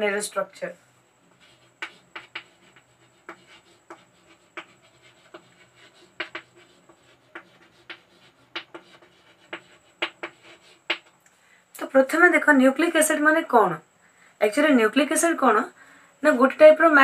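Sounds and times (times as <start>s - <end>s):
pen scratching while writing: 1.3s - 11.1s.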